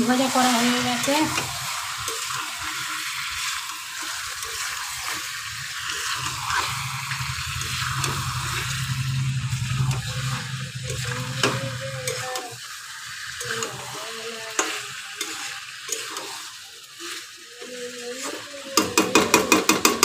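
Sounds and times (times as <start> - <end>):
chicken sizzling in a pan: 0.0 - 20.0
metal utensil clicking on pan: 0.7 - 2.5, 10.9 - 12.5, 13.4 - 13.8, 14.5 - 16.6, 18.2 - 20.0.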